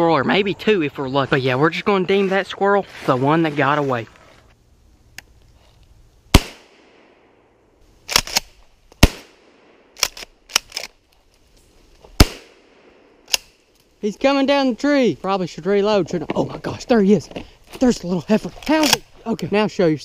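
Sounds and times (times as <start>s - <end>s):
shotgun shots with echo: 6.4s - 7.2s, 9.0s - 9.9s, 12.2s - 13.0s.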